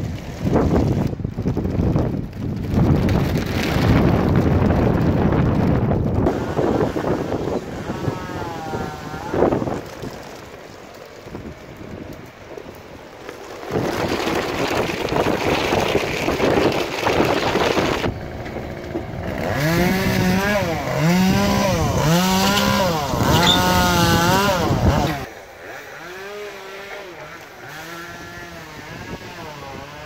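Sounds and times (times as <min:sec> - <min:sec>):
steady rushing noise: 0:00.0 - 0:20.9
chainsaw revving: 0:06.2 - 0:09.9, 0:13.5 - 0:30.0.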